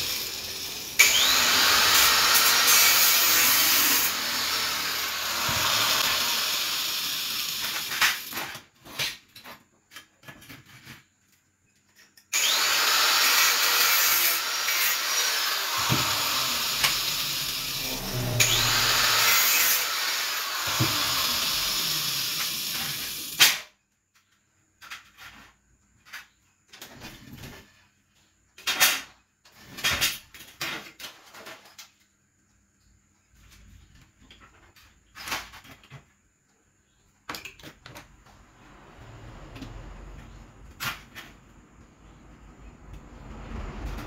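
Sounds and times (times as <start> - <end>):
angle grinder cutting metal: 0.0 - 8.3, 12.3 - 23.4.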